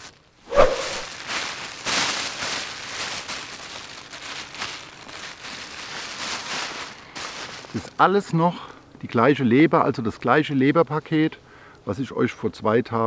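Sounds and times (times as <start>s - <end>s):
plastic packaging crinkling: 1.0s - 8.0s.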